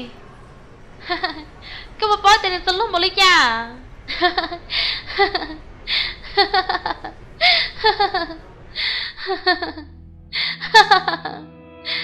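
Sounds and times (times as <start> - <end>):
woman laughing hard: 4.1 - 12.0.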